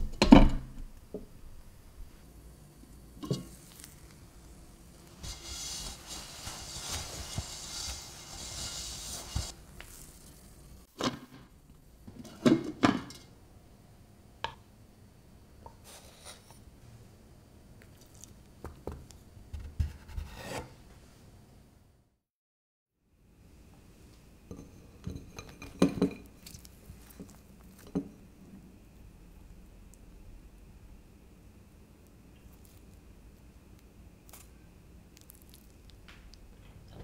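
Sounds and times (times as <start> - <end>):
wooden spatula scraping and knocking: 5.0 - 10.6, 19.6 - 20.8
cloth towel rubbing: 5.1 - 10.2.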